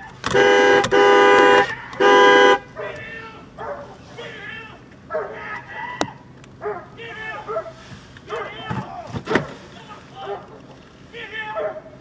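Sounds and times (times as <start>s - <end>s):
car horn honking: 0.0s - 3.0s
dog barking: 2.8s - 3.0s, 3.6s - 4.0s, 5.1s - 5.5s, 6.6s - 8.6s, 10.2s - 10.6s, 11.5s - 12.0s.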